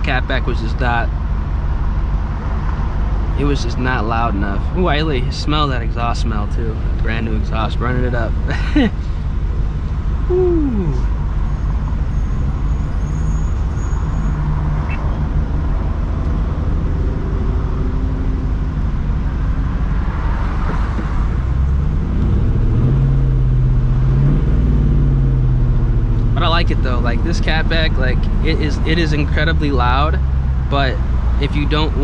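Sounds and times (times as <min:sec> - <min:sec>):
car engine idling: 0:00.0 - 0:32.0.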